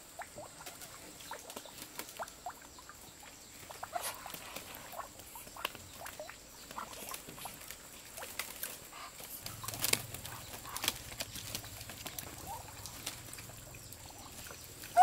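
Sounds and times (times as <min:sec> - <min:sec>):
wing flaps: 0:03.7 - 0:13.7
clicks and rustles: 0:06.7 - 0:13.7
soft duck calls: 0:08.8 - 0:11.0, 0:12.3 - 0:15.0.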